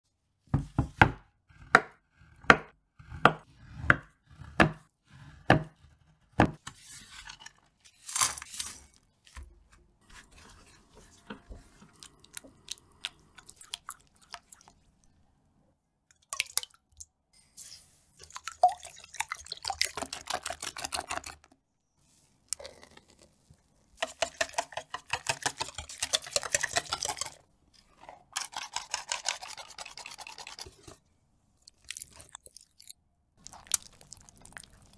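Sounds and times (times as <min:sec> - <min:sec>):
knife chopping chocolate on wooden board: 0:00.6 - 0:06.6
scraping and stirring: 0:06.6 - 0:15.1, 0:17.5 - 0:34.9.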